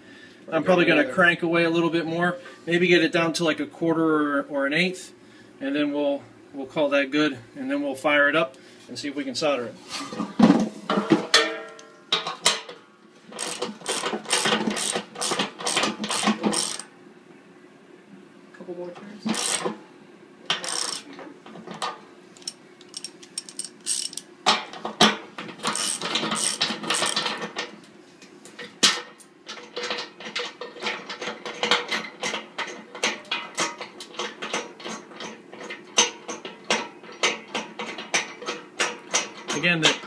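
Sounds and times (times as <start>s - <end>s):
ratchet wrench clicking: 13.4s - 16.9s, 19.3s - 19.7s, 20.5s - 21.0s, 22.4s - 24.2s, 25.7s - 27.2s.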